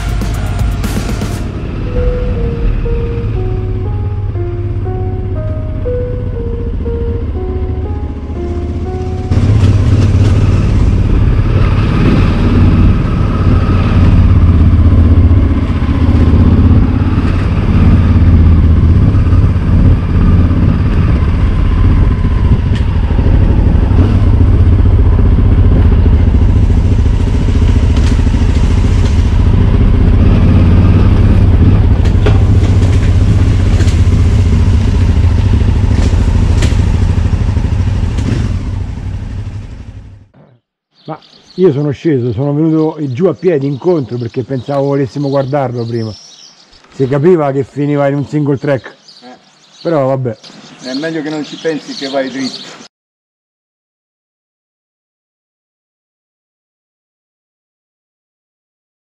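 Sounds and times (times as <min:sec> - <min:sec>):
motorcycle engine running: 0:00.0 - 0:40.6.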